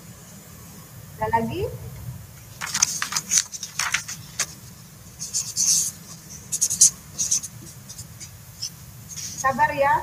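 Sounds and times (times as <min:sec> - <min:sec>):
scratchy handling rustles: 0:02.5 - 0:09.5.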